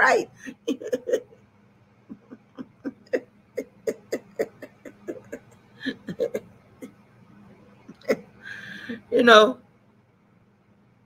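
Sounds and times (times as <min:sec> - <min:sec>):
woman chuckling: 0:00.4 - 0:01.4, 0:02.0 - 0:07.0, 0:07.7 - 0:09.2.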